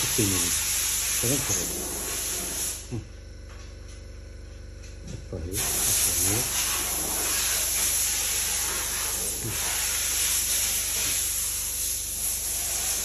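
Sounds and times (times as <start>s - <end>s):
steady hiss: 0.0s - 3.0s, 5.5s - 13.0s.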